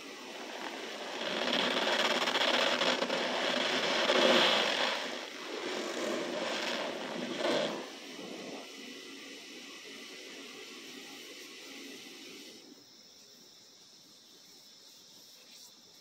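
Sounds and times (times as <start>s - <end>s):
hands crushing cornstarch powder: 0.0s - 7.8s.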